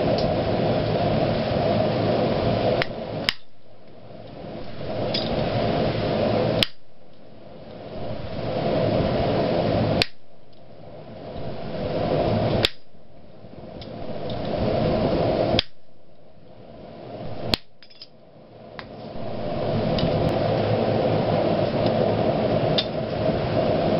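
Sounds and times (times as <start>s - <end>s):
steady background rush: 0.0s - 23.9s
hammer striking hot iron: 2.8s - 4.0s, 6.6s - 6.9s, 10.0s - 10.5s, 12.6s - 13.0s, 15.5s - 15.9s, 17.3s - 18.1s.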